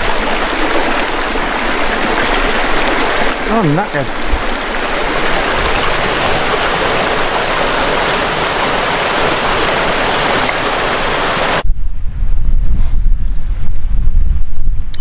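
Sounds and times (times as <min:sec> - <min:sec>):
rushing water of waterfall: 0:00.0 - 0:11.6
wind buffeting microphone: 0:04.1 - 0:15.0.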